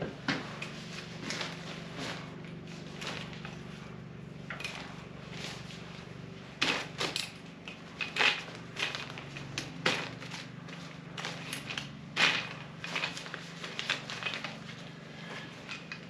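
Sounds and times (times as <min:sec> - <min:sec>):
fabric seat rustling: 0:00.4 - 0:16.0
metal chair frame clicking: 0:11.2 - 0:14.8.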